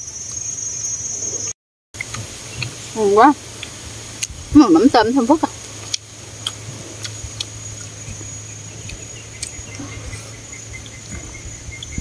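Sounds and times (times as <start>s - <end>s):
high insect drone: 2.4s - 12.0s
noodles chewed: 5.5s - 12.0s
wet mouth clicks and smacks: 5.8s - 7.9s.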